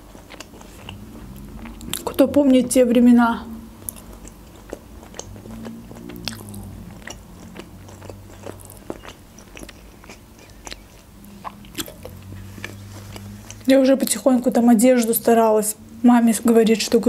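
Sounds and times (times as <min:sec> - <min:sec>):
chewing food: 0:00.0 - 0:15.4
mouth clicks: 0:03.8 - 0:14.2.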